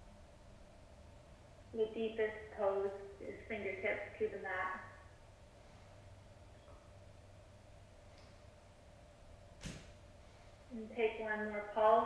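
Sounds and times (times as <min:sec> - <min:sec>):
faint hum: 0:00.0 - 0:12.0.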